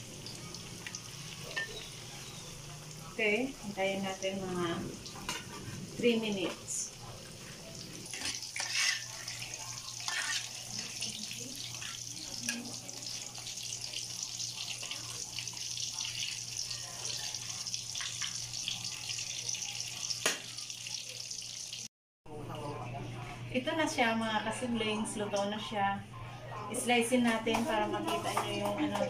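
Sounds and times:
pork chops sizzling in hot oil: 0.0s - 21.9s.

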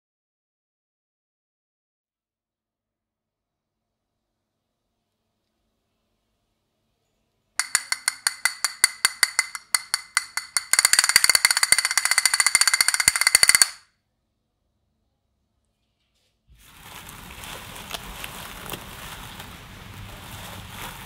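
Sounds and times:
castanets clicking: 7.6s - 13.8s.

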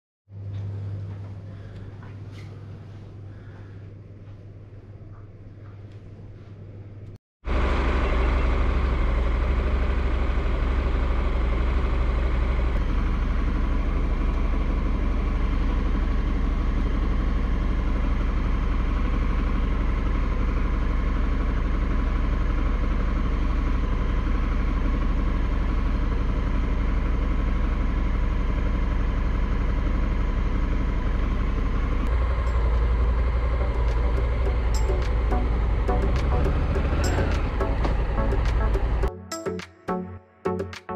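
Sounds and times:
motorcycle engine running: 7.4s - 39.1s.

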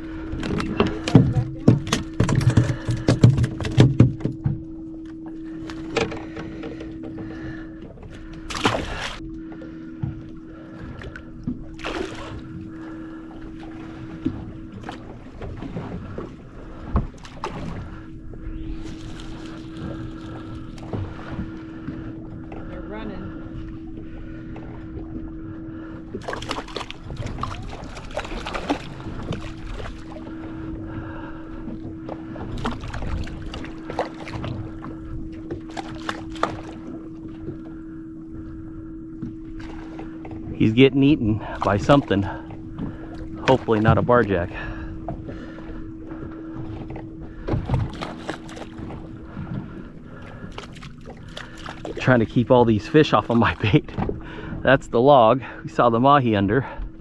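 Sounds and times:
steady hum: 0.0s - 57.0s
water slapping against hull: 0.0s - 57.0s
water splash: 8.5s - 9.2s, 11.8s - 12.5s, 26.2s - 30.3s.

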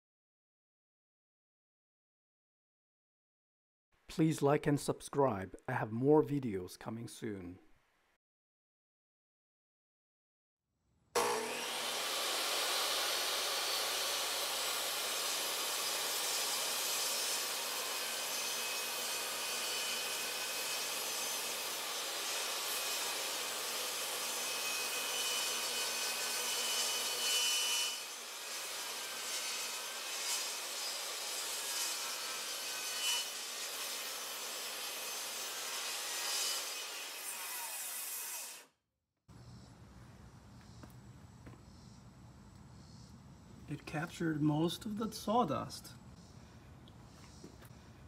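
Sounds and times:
table saw cutting wood: 11.2s - 38.8s.

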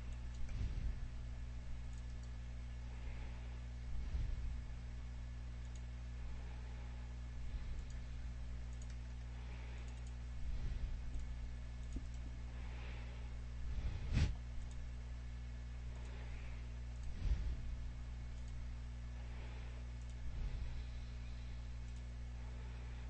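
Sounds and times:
steady low hum: 0.0s - 23.0s
computer mouse clicks: 0.1s - 0.7s, 1.8s - 2.4s, 5.6s - 5.9s, 7.6s - 10.2s, 11.1s - 12.4s, 14.6s - 14.9s, 18.3s - 18.6s, 19.9s - 20.2s, 21.8s - 22.1s.

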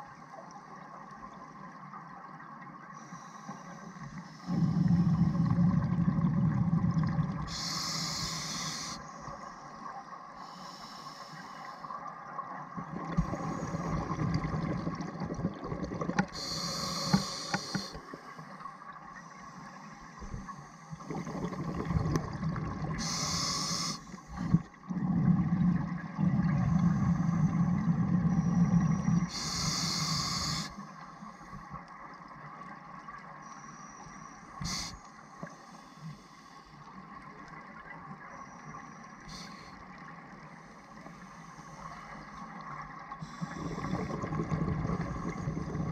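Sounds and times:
exhaled bubbles rushing: 4.5s - 7.5s, 12.8s - 16.4s, 21.0s - 23.0s, 24.4s - 29.3s, 43.5s - 45.9s
low bubbling rumbles: 4.5s - 7.5s, 21.0s - 23.0s
regulator hiss: 7.5s - 9.2s, 16.4s - 18.6s, 23.0s - 24.6s, 28.6s - 31.6s, 33.6s - 36.7s, 39.2s - 39.8s.

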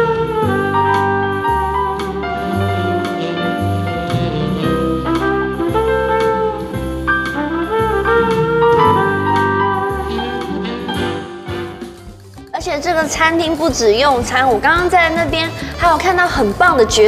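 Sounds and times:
brass horn melody: 0.0s - 12.1s
keyboard chords: 0.0s - 17.0s
conga drums: 0.1s - 17.0s.

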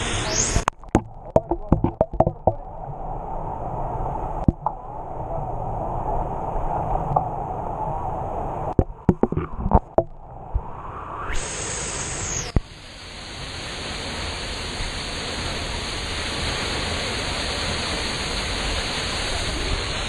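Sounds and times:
camera knocking against concrete: 8.8s - 10.1s.

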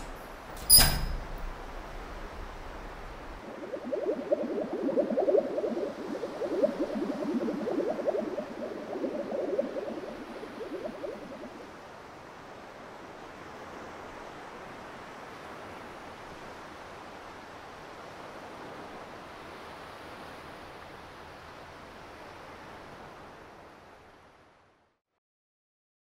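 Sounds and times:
steady soft hiss: 0.0s - 3.4s
water bubbling and gurgling: 1.1s - 12.2s.

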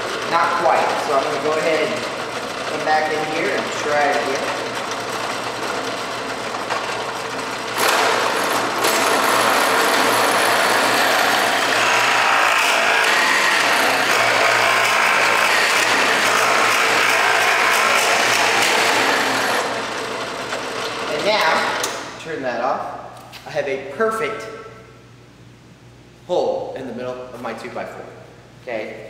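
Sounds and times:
drill press motor humming: 0.0s - 22.1s
drill bit boring into wood: 0.1s - 21.7s.

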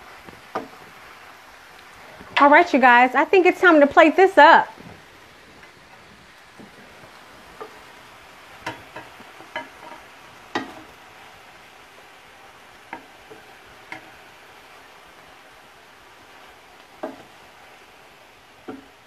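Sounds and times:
faint sizzle: 0.0s - 19.0s
wooden spatula scraping skillet: 4.8s - 19.0s.

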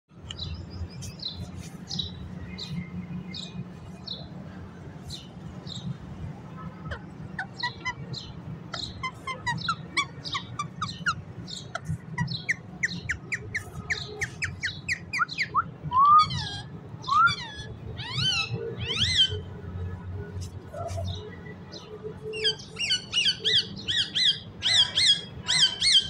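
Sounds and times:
parakeet squawks: 6.9s - 8.0s, 8.7s - 15.5s, 16.1s - 19.4s
parakeet chirps: 8.7s - 19.4s.

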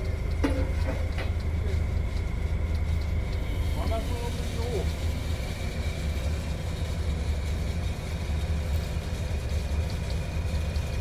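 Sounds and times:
diesel engine running: 0.0s - 11.0s
faint steady whine: 0.0s - 11.0s.

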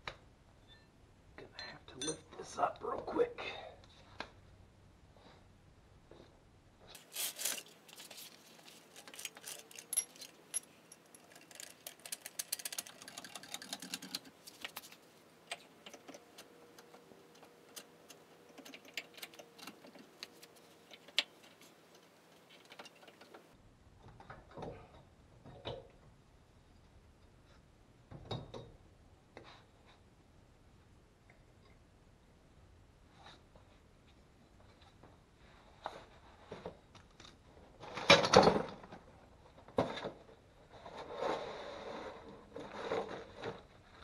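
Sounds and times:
metal tools clicking and clinking: 1.6s - 2.4s, 8.8s - 14.3s.

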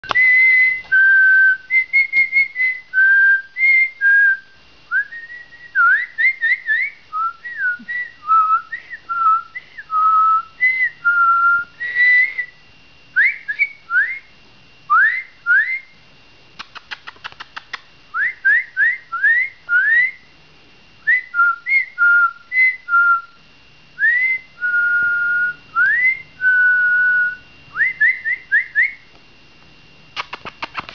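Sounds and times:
person whistling: 0.0s - 4.4s, 5.0s - 12.6s, 13.2s - 14.3s, 24.0s - 29.0s
quick run of clicks: 16.6s - 17.9s, 30.2s - 30.9s.

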